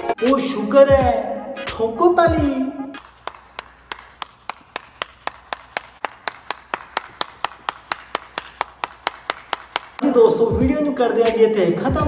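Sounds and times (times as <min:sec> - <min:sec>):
person clapping hands: 0:03.0 - 0:10.0.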